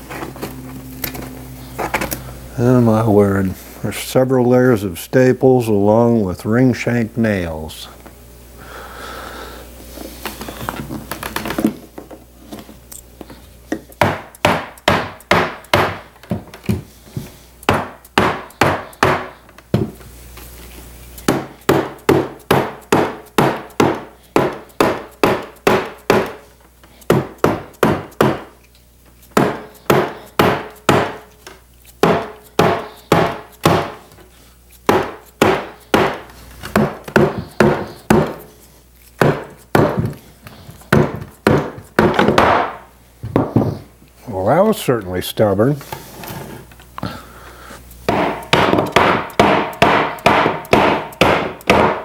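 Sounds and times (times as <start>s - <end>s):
mallet knocking on wood: 14.0s - 16.0s, 17.7s - 19.9s, 21.3s - 26.4s, 27.1s - 28.5s, 29.4s - 31.2s, 32.0s - 34.0s, 34.9s - 38.4s, 39.2s - 40.2s, 40.9s - 43.7s, 48.1s - 52.0s.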